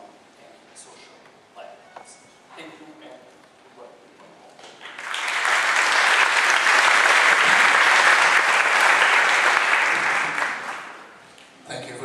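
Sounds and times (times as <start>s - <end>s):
audience applauding: 4.8s - 11.2s.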